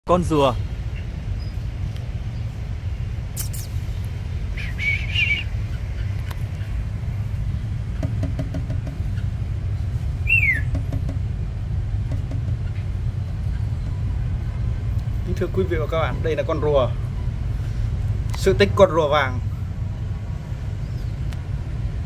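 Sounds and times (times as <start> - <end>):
road traffic rumble: 0.0 - 22.0
bird chirping: 0.9 - 1.7, 4.5 - 6.8, 10.2 - 11.0
falling whistled bird note: 4.6 - 5.5, 10.2 - 10.7.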